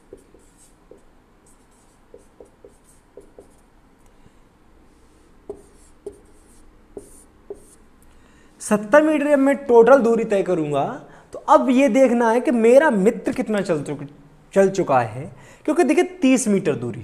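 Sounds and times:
marker squeaking on whiteboard: 0.0 - 3.6, 5.5 - 7.8.

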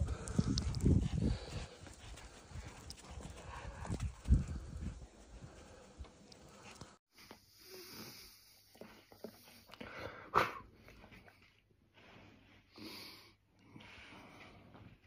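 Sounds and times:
dog breathing and huffing: 0.0 - 7.0.

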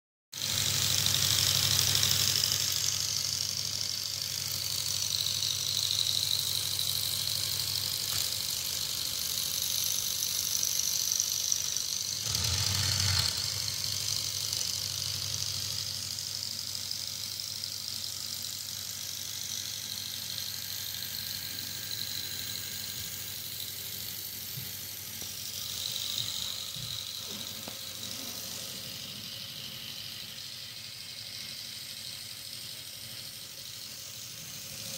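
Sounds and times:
small electric motors whining: 0.4 - 34.9.

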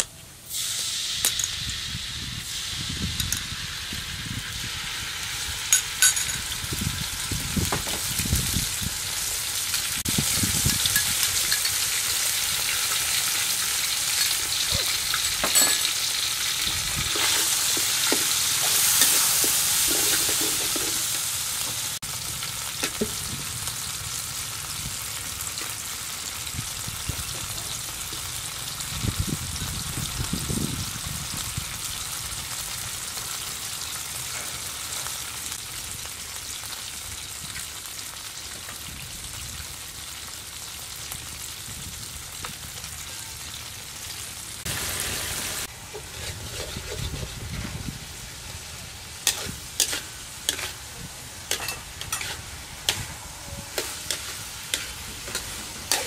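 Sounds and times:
sauce sizzling in a wok: 0.3 - 56.0
metal spatula scraping a wok: 14.1 - 21.2, 45.6 - 47.8, 49.2 - 56.0.

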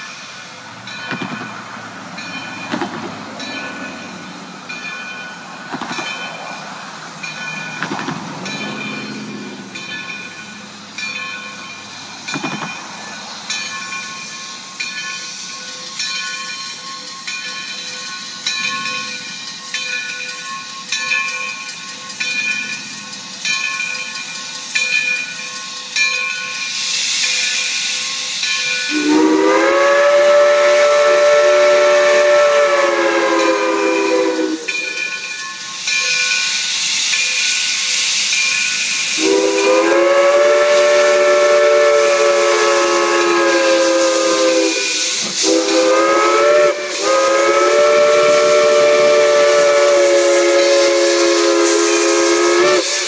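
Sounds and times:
crossing bell ringing: 0.0 - 53.0
steam locomotive hissing: 0.0 - 53.0
steam whistle blowing: 28.9 - 35.0, 39.1 - 53.0.

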